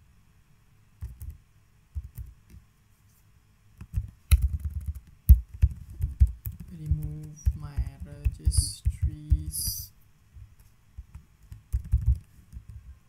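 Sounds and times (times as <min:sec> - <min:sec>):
computer keyboard typing: 0:01.0 - 0:02.3, 0:03.8 - 0:09.9, 0:11.0 - 0:12.9.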